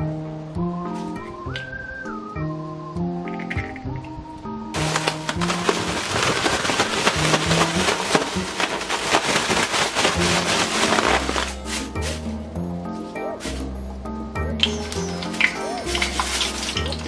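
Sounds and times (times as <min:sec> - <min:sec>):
background music: 0:00.0 - 0:17.0
food tumbling in bag: 0:04.8 - 0:12.3, 0:15.2 - 0:17.0
plastic bag crinkling: 0:04.8 - 0:12.3, 0:14.8 - 0:17.0.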